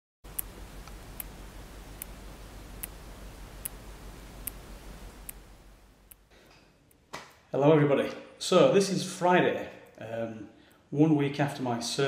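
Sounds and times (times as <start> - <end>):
mechanical heart valve clicking: 0.3 - 5.5
low steady rumble: 0.3 - 6.3.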